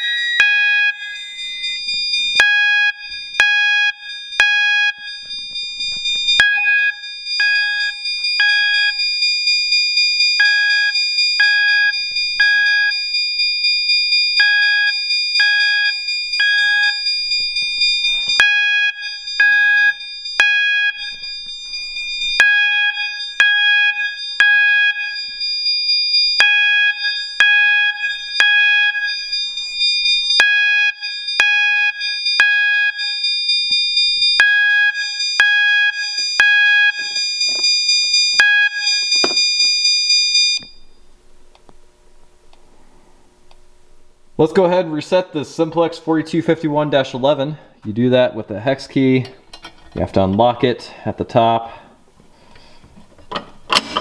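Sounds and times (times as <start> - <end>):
fire alarm chime ringing: 0.0 - 40.9
high electronic alarm tone: 0.0 - 40.9.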